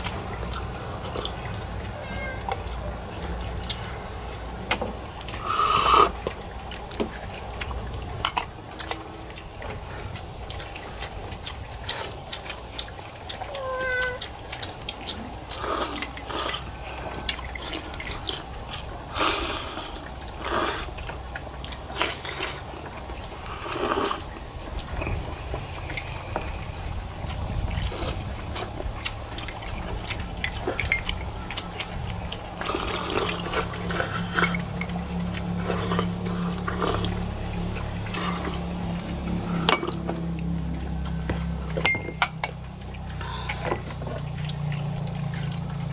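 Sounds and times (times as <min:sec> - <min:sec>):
people slurping noodles: 0:00.0 - 0:12.4, 0:13.2 - 0:41.7
low steady hum: 0:00.0 - 0:45.9.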